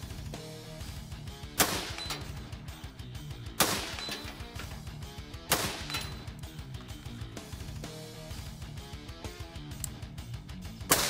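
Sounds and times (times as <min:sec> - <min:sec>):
guitar music: 0:00.2 - 0:10.8
rifle shots: 0:01.5 - 0:02.5, 0:03.5 - 0:04.7, 0:05.3 - 0:06.4.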